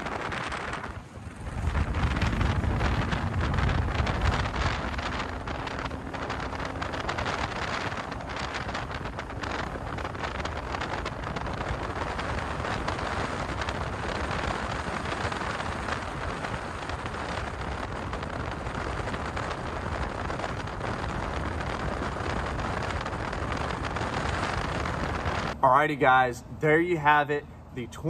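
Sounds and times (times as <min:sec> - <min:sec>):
boat running on choppy water: 0:00.0 - 0:25.6
wind buffeting microphone: 0:00.0 - 0:28.0.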